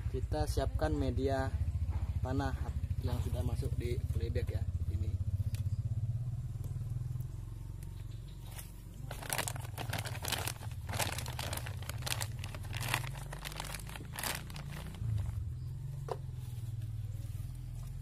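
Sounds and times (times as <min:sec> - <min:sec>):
plastic bag crinkling: 0:09.0 - 0:15.4.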